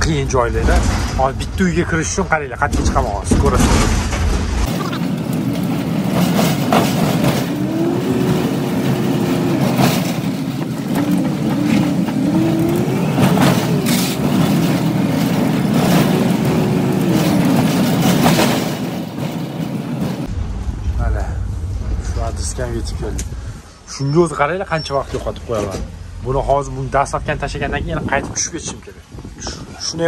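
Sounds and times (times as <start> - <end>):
road noise: 0.0 - 30.0
knocks and rattles: 2.6 - 20.3
van engine revving: 4.6 - 23.6.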